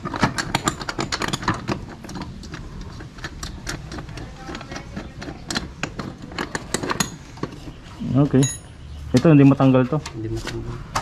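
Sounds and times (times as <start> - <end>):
clicks and knocks of hands working: 0.0 - 7.8.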